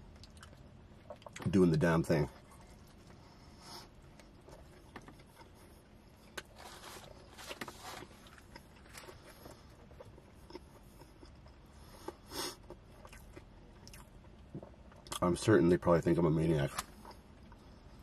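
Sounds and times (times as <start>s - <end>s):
chewing food: 0.0s - 1.5s, 7.4s - 15.2s.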